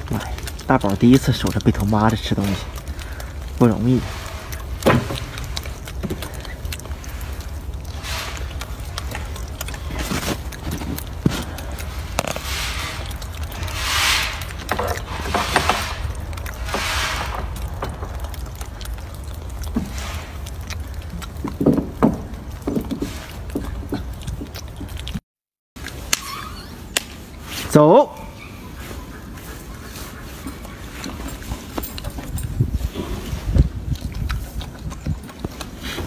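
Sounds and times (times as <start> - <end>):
wind on microphone: 31.8 - 36.0.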